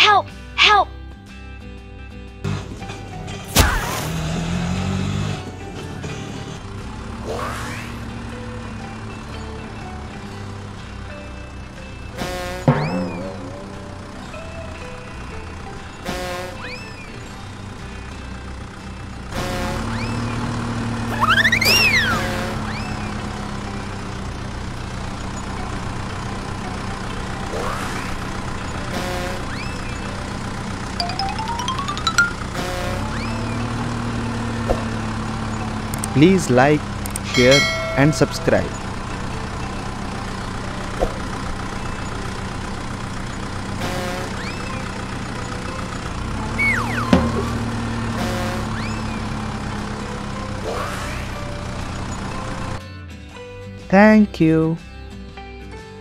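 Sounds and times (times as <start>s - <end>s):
truck engine idling: 4.4s - 52.9s
whistling chirps: 21.1s - 23.1s, 46.6s - 47.2s.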